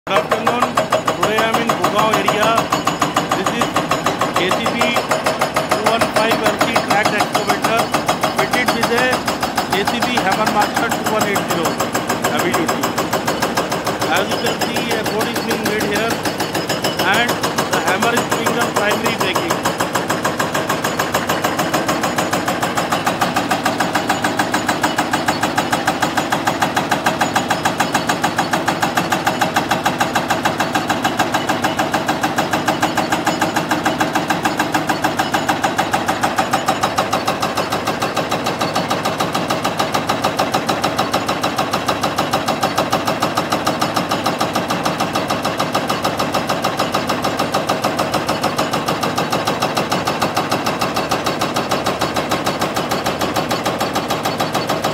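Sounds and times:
excavator engine running: 0:00.1 - 0:54.9
hydraulic breaker hammering rock: 0:00.1 - 0:54.9.

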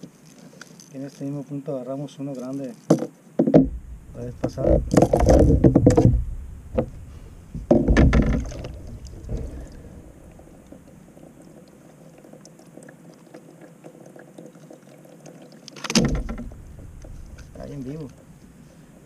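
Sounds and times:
water sounds: 0:00.0 - 0:19.0
knocks on plastic kayak: 0:07.6 - 0:08.7.

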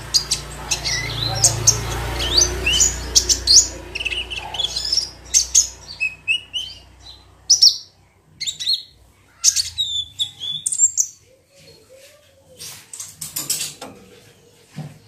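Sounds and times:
sunbird chirps and trills: 0:00.0 - 0:11.9.

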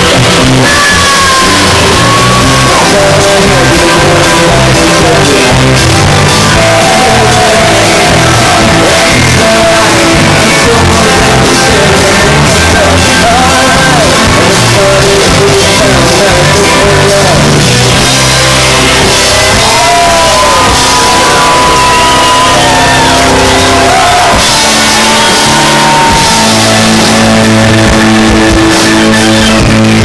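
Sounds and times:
person singing: 0:00.0 - 0:18.2
bass: 0:00.0 - 0:30.0
drums: 0:00.0 - 0:30.0
electric guitar: 0:00.0 - 0:30.0.

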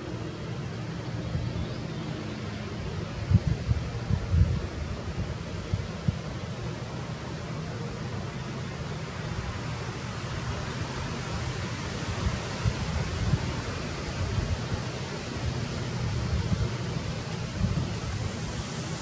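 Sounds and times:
wind on microphone: 0:02.7 - 0:06.9, 0:09.3 - 0:19.0.

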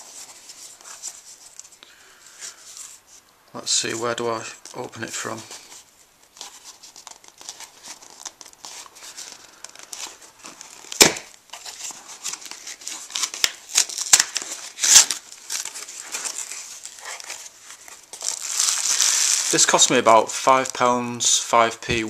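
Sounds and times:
cardboard box tearing open: 0:09.9 - 0:19.6.

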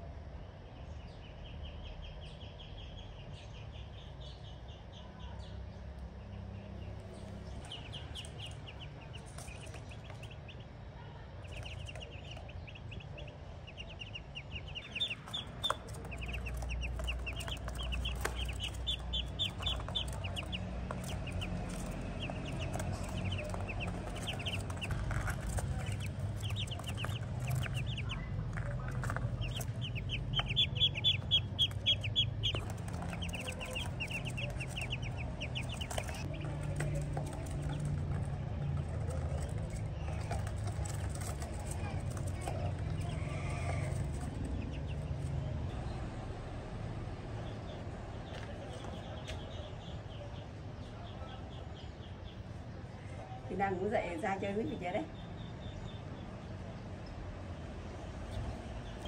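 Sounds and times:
ducklings peeping: 0:00.8 - 0:46.0, 0:58.2 - 0:59.0.

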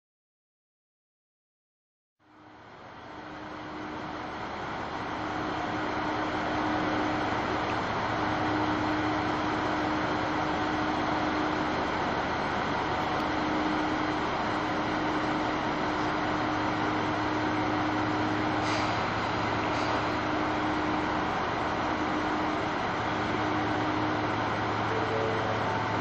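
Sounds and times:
diesel railcar engine idling: 0:02.2 - 0:26.0
short air hisses: 0:18.6 - 0:20.1.

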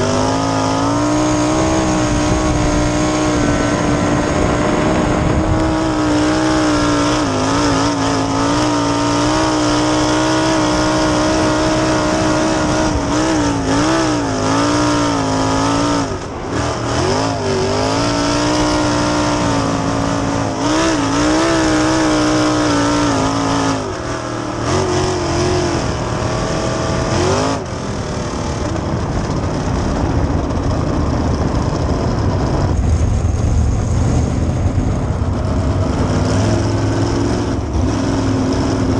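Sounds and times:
racing car engine: 0:00.0 - 0:38.9.

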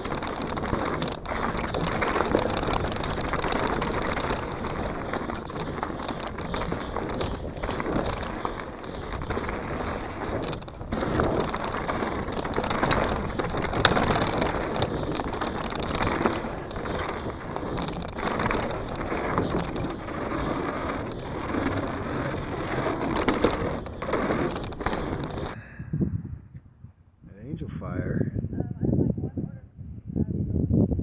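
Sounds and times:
bike rattling over bumps: 0:00.0 - 0:25.6
tyres crunching over gravel: 0:00.0 - 0:25.6.

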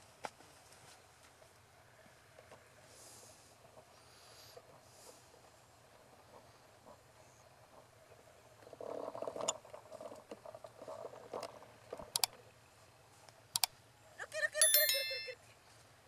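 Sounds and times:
bell notification chime: 0:14.6 - 0:15.4.

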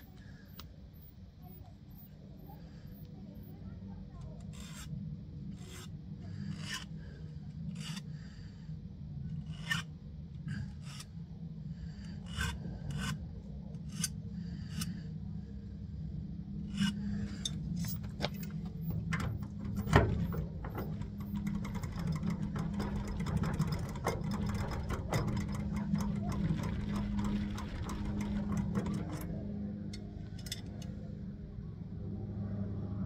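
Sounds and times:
hand file rasping on metal: 0:04.5 - 0:04.9, 0:05.5 - 0:06.9, 0:07.7 - 0:08.1, 0:09.4 - 0:09.8, 0:12.0 - 0:13.2, 0:13.8 - 0:14.9, 0:16.7 - 0:29.2.

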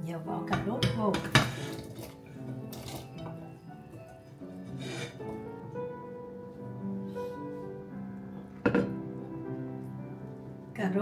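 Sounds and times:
background music with held notes: 0:00.0 - 0:11.0
scrape and clink on plate: 0:04.7 - 0:05.2.

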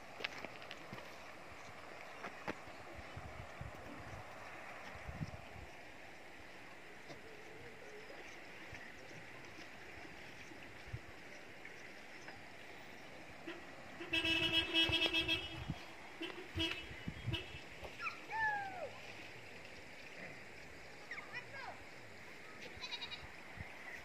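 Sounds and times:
low background hiss: 0:00.0 - 0:24.0
vehicle horn toot: 0:13.4 - 0:17.7.

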